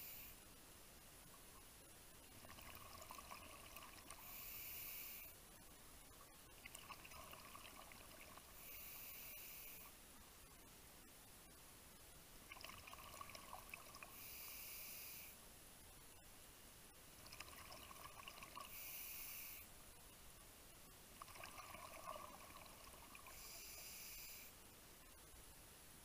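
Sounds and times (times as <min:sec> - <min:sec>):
diver breathing through regulator: 0:04.2 - 0:05.4, 0:18.7 - 0:19.7, 0:23.2 - 0:24.6.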